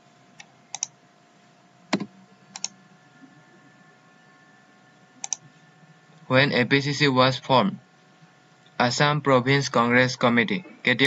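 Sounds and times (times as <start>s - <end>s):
faint steady tones: 0.0s - 11.0s
computer mouse clicks: 0.4s - 1.0s, 1.9s - 2.8s, 5.2s - 5.5s.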